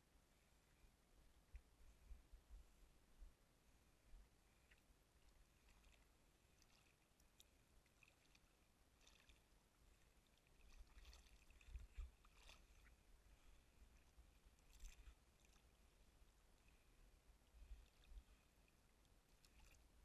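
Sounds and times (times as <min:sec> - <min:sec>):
soft water splashes: 0:00.4 - 0:20.0
river water lapping: 0:03.8 - 0:20.0.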